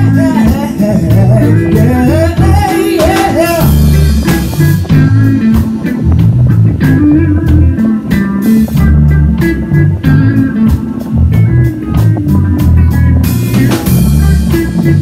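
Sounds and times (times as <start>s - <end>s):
man singing: 0.0s - 5.8s
drums: 0.0s - 15.0s
electric bass guitar: 0.0s - 15.0s.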